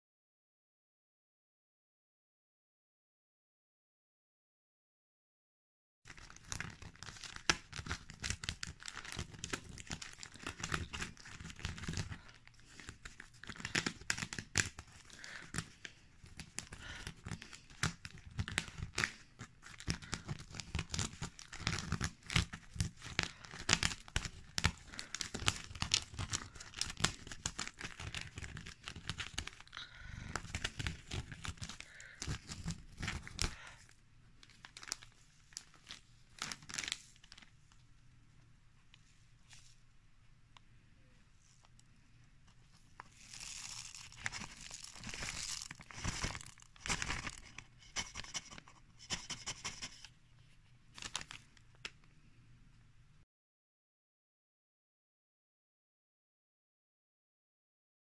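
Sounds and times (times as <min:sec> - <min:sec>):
paper flyer crinkling and rustling: 0:06.1 - 0:37.8, 0:42.7 - 0:50.1, 0:50.9 - 0:52.0.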